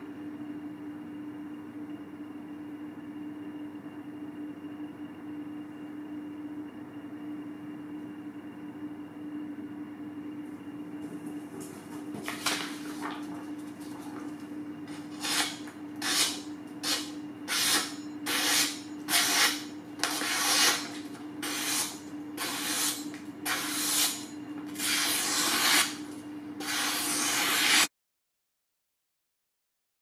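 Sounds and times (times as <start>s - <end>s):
cleaver slicing paper: 12.2s - 13.4s, 14.9s - 27.9s.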